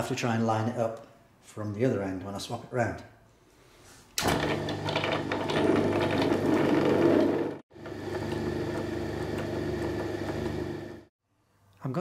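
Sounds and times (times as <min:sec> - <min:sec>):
drill-mill motor hum with gear rattle: 0:04.2 - 0:11.1.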